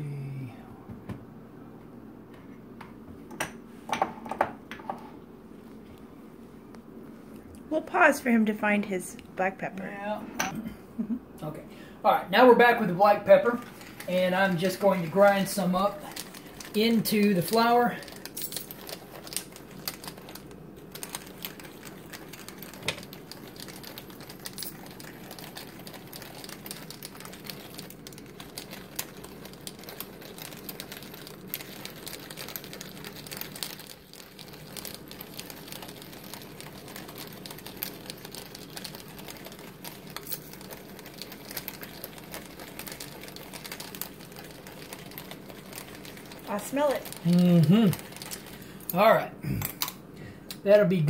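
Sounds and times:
pepper mill grinding: 13.6s - 49.0s.

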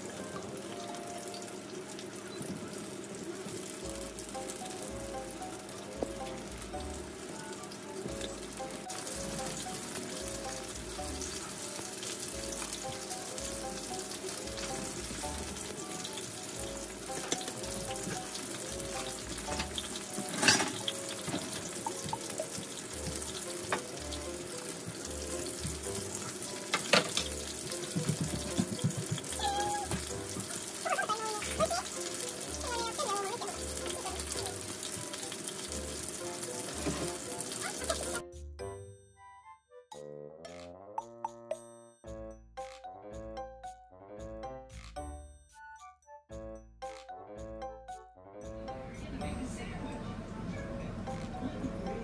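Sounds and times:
cutlets sizzling in oil: 0.0s - 38.2s
light background music: 0.0s - 52.0s.

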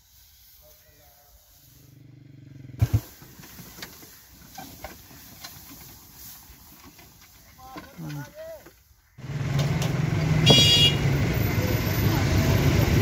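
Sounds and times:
dry straw rustling: 0.0s - 2.1s, 2.8s - 9.2s
loud thumps: 2.8s - 3.4s.

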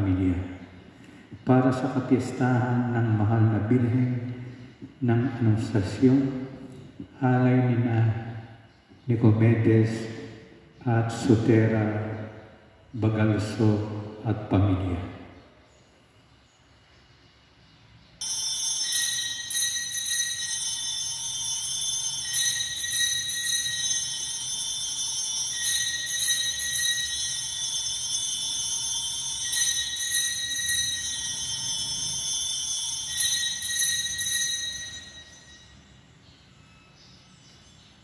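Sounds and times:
church bells ringing: 5.1s - 8.5s, 18.2s - 38.0s.

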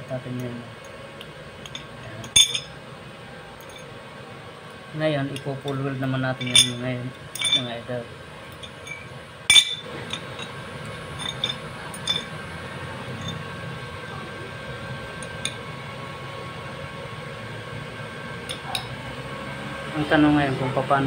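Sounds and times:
steady low hum: 0.0s - 21.0s
metal rod clinking on steel: 1.6s - 2.7s, 6.4s - 7.7s, 8.5s - 12.4s, 13.2s - 13.5s.

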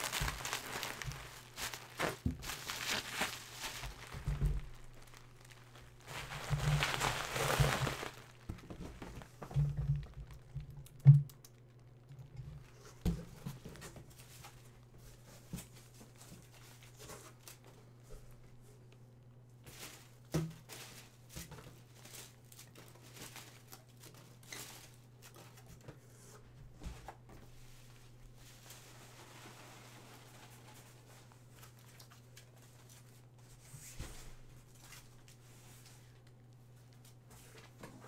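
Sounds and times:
packing peanuts rustling: 0.0s - 10.4s
faint steady hum: 0.0s - 38.0s.

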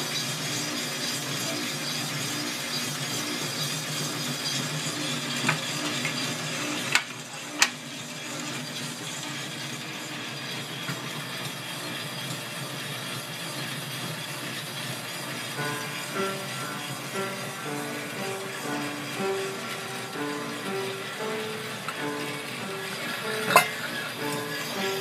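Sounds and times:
roaster motor hum: 0.0s - 25.0s
coffee beans tumbling in drum: 13.6s - 25.0s.

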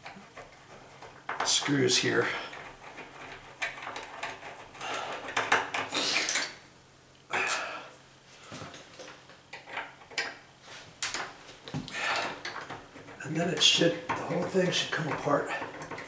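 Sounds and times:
screwdriver scraping and clicking screws: 0.0s - 6.5s.

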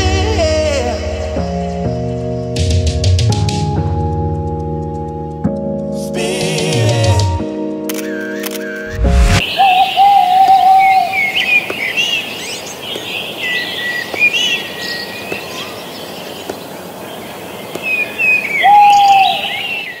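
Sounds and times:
birds chirping: 8.0s - 20.0s.

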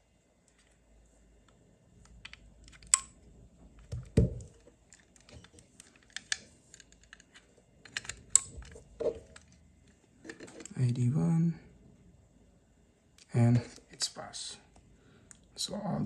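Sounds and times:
plastic plugs clicking: 1.4s - 3.2s, 3.8s - 9.5s.

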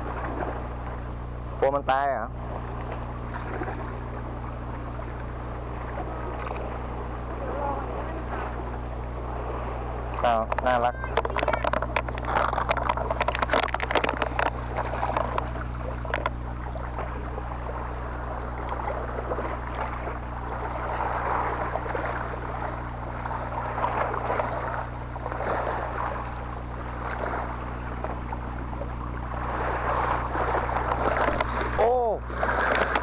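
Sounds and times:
low hum: 0.0s - 33.0s
sea water splashing on rocks: 2.7s - 33.0s
sharp clicks and knocks: 10.2s - 16.4s, 32.7s - 33.0s.

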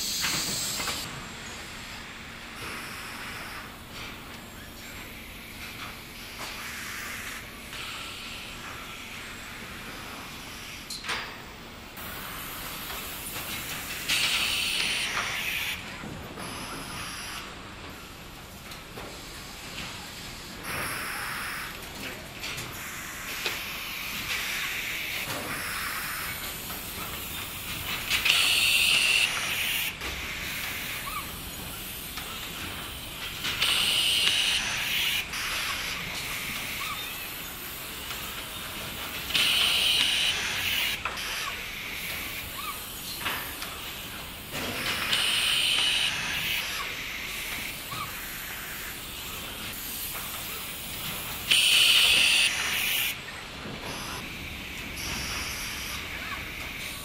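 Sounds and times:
compressed air hiss: 31.8s - 53.2s.

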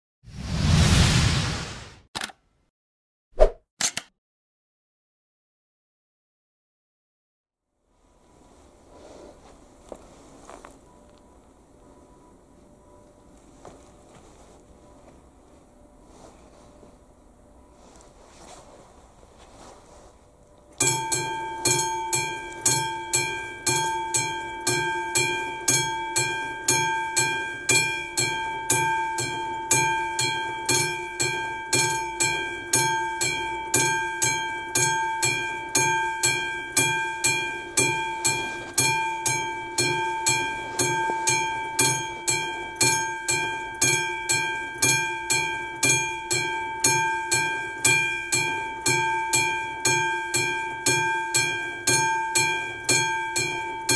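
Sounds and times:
level crossing bell ringing: 20.8s - 53.9s.

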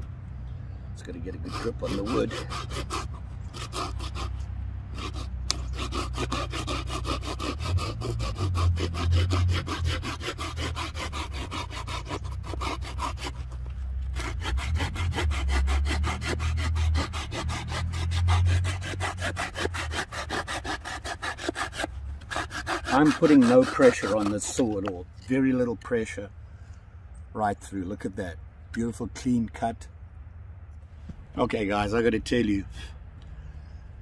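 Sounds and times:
folding saw cutting through branch: 1.0s - 26.0s.

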